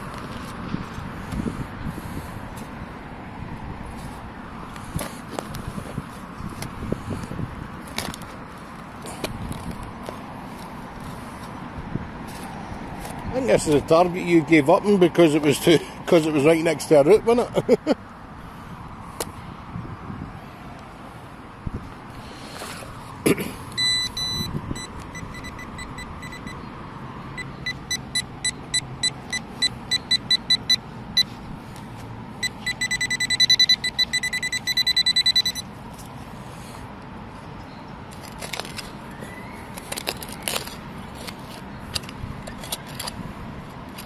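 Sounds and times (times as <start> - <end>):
metal detector probe beeping: 23.7 - 26.7, 27.3 - 31.4, 32.4 - 35.7.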